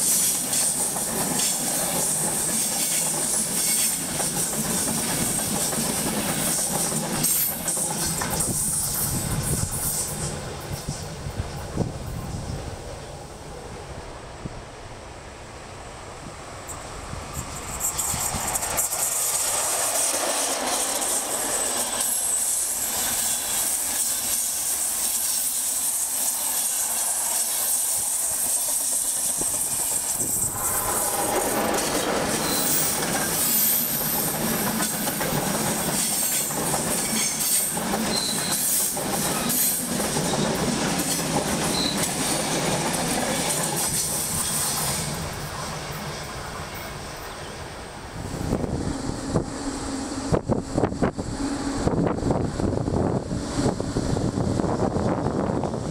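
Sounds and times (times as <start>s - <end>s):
train wheels rumbling over rails: 0.0s - 14.8s, 15.8s - 55.9s
high wheel squeals: 16.7s - 34.6s, 35.8s - 42.6s.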